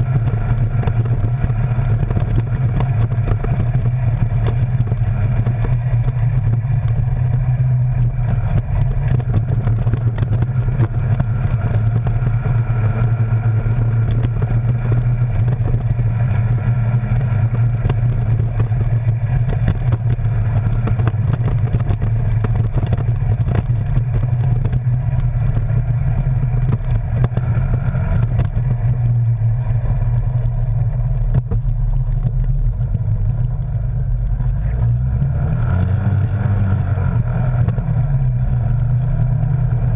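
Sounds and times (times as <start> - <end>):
engine running: 0.0 - 39.9
rattles and knocks over rough trail: 0.0 - 39.9.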